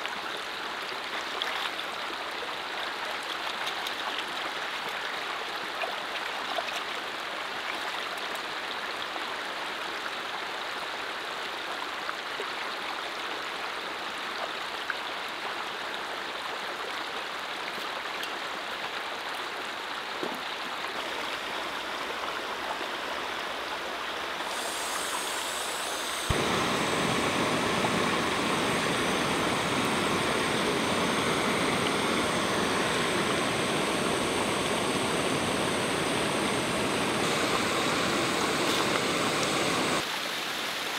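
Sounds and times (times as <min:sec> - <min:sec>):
running water: 0:00.0 - 0:09.5, 0:16.8 - 0:40.9
gas stove burning: 0:24.5 - 0:40.0.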